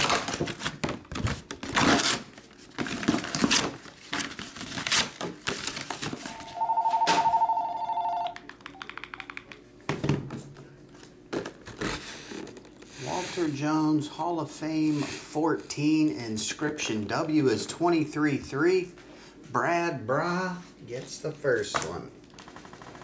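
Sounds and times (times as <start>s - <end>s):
electronic telephone ring: 6.3s - 9.4s.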